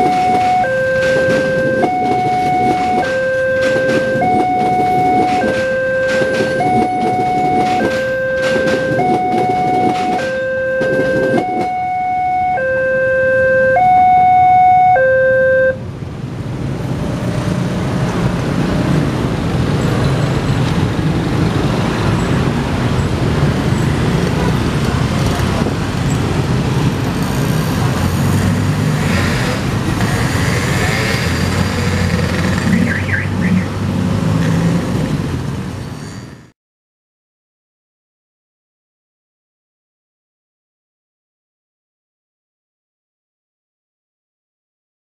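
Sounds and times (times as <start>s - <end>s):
level crossing two-note alarm: 0.0s - 15.8s
motorcycles and cars passing: 15.9s - 36.0s.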